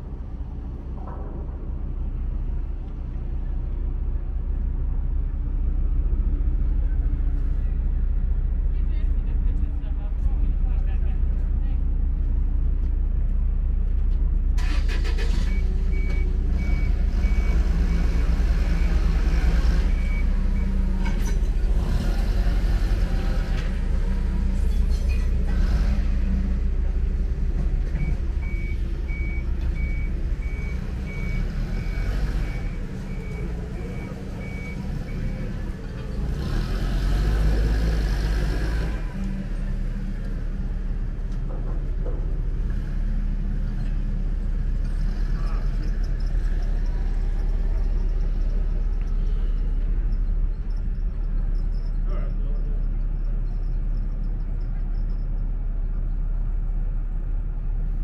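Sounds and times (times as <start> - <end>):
heavy engine rumbling: 0.0 - 58.0
reversing warning beeps: 14.6 - 19.1, 19.7 - 20.8, 28.0 - 35.6.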